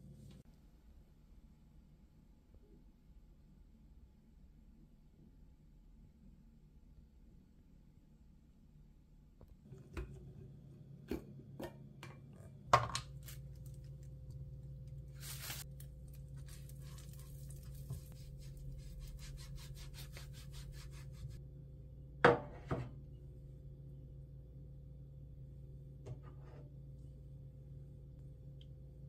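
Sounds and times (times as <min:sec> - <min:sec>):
steady low hum: 0:00.0 - 0:29.0
pastry brush swishing in pan: 0:15.1 - 0:21.4.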